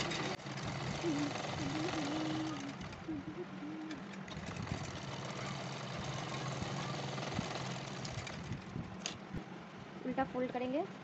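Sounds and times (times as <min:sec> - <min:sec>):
sewing machine running: 0:00.0 - 0:03.2, 0:03.9 - 0:08.7.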